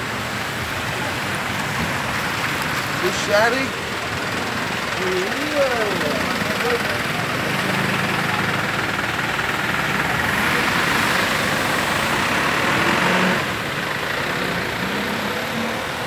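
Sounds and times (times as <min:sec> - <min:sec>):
heavy rain and water hiss: 0:00.0 - 0:16.0
truck engine running: 0:00.0 - 0:16.0.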